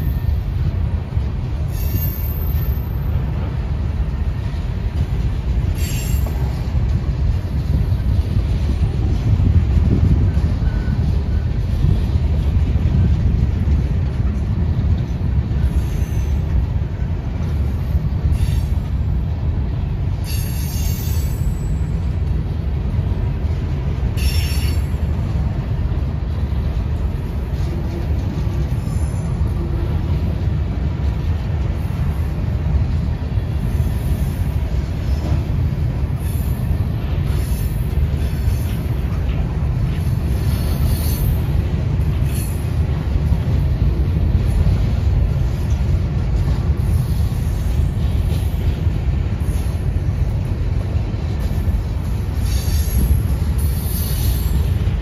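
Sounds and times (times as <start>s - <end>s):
freight train rumbling on rails: 0.0s - 55.0s
high wheel squeals: 1.7s - 3.2s, 5.7s - 6.6s, 20.2s - 22.0s, 24.2s - 25.0s, 52.4s - 54.8s.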